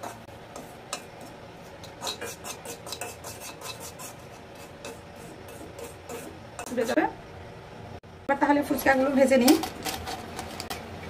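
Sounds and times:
metal spoon scraping salt in wok: 0.0s - 7.0s.

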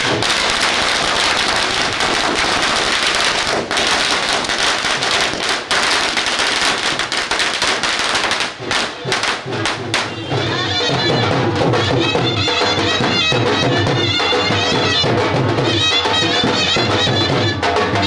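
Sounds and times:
firecrackers popping: 0.0s - 10.5s.

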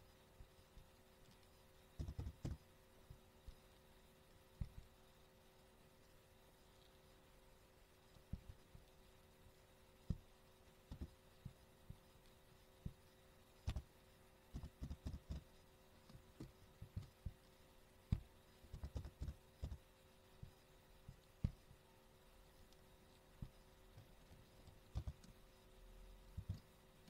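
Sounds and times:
computer keyboard keystrokes: 2.0s - 2.6s, 18.7s - 19.8s, 24.9s - 25.3s.

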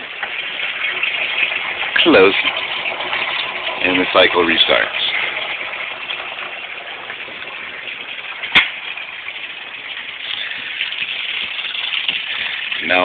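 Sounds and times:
water running: 0.0s - 13.0s.

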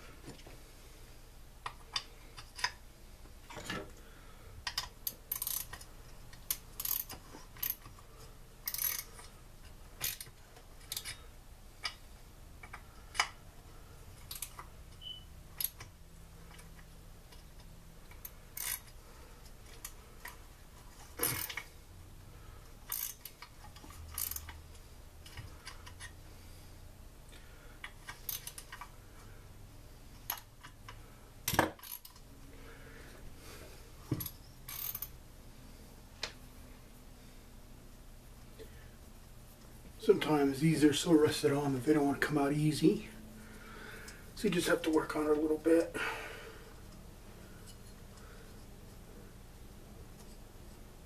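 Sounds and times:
tools and metal parts clinking: 21.2s - 21.6s.

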